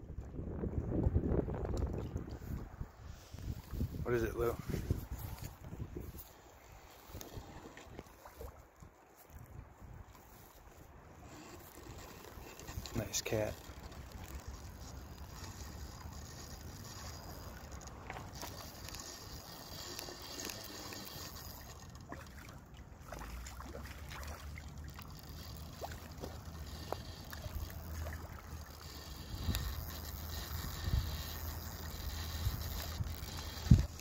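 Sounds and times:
wind buffeting microphone: 0.0 - 8.6, 27.9 - 34.0
water lapping against rocks: 1.5 - 34.0.

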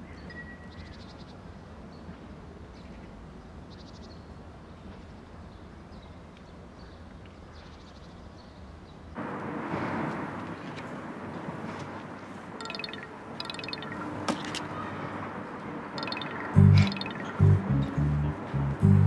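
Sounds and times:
bird chirps and trills: 12.6 - 14.9, 16.0 - 18.0.

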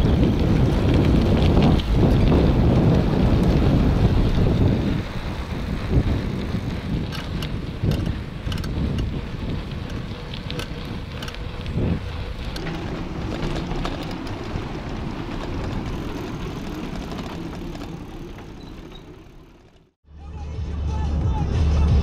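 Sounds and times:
wind noise on microphone: 0.0 - 19.3
bicycle rattling over bumps: 0.0 - 20.0.

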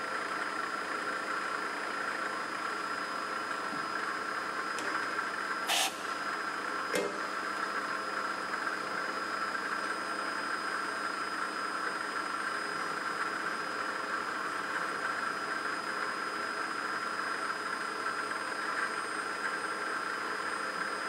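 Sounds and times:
drill press motor whining: 3.4 - 7.7
short noisy burst: 5.7 - 6.3
sharp click: 6.9 - 7.2.

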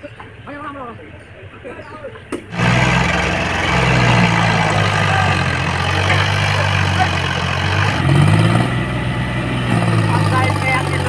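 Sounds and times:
tractor diesel engine running: 2.5 - 11.0.

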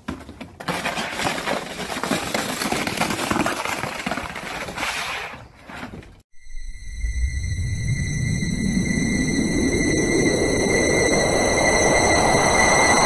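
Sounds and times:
plastic sled scraping asphalt: 0.0 - 6.2.

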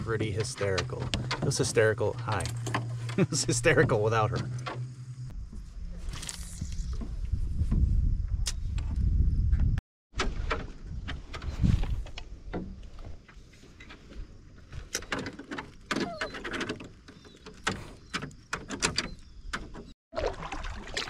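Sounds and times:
knocks and clicks inside canoe: 0.0 - 5.1, 10.2 - 19.9
water lapping at boat: 20.1 - 21.0.

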